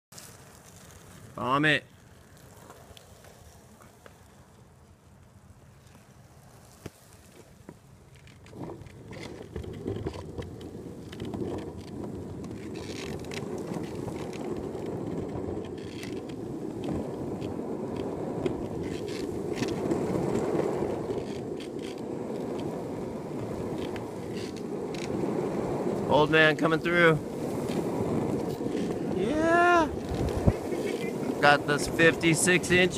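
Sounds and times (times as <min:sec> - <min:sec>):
skateboard wheels rolling on asphalt: 0:00.0 - 0:32.9
clicks and knocks from pavement: 0:02.0 - 0:04.6, 0:05.2 - 0:25.2.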